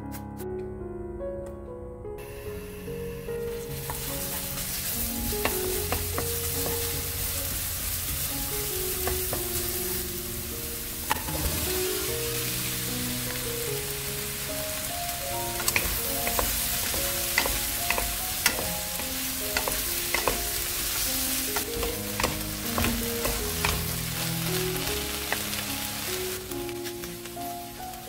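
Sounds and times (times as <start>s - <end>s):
onions sizzling in oil: 2.2s - 28.0s
wooden spatulas tapping a pan: 3.8s - 8.2s, 8.9s - 9.8s, 15.5s - 25.7s.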